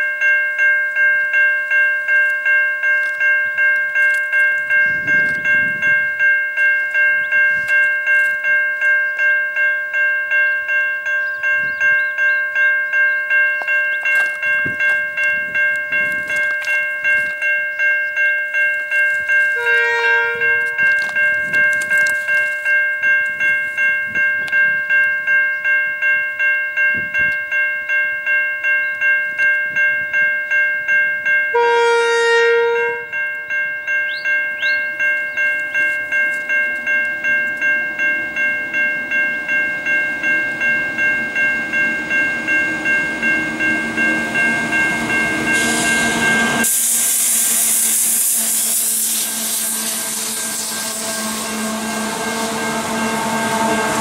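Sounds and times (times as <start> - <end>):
level crossing bell ringing: 0.0 - 46.7
train horn blast: 19.6 - 21.1, 31.5 - 33.2, 47.5 - 54.0.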